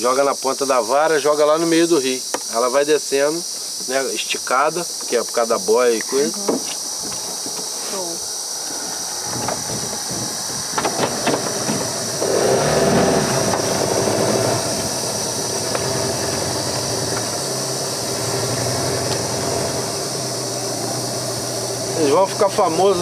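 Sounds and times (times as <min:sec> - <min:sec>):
boat motor running: 0:09.3 - 0:23.0.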